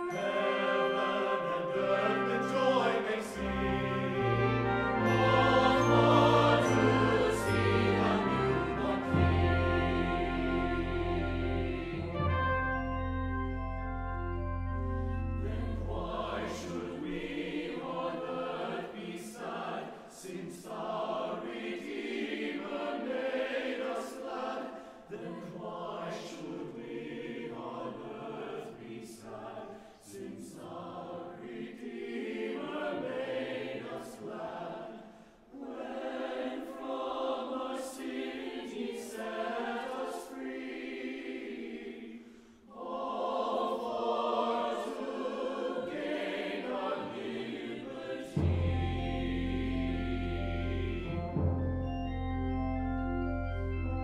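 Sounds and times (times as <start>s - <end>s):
held brass chord: 0.0s - 16.5s
choir singing: 0.0s - 52.5s.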